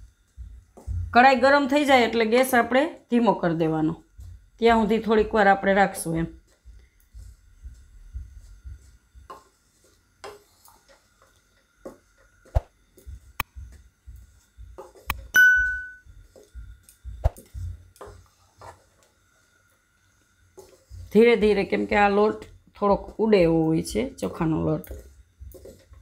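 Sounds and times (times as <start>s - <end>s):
short ringing ping: 15.4s - 16.0s.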